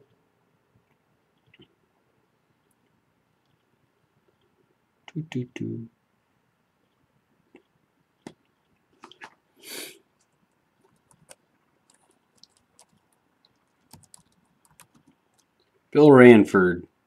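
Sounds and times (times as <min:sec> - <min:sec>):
laptop keys and touchpad clicks: 0:13.8 - 0:15.5.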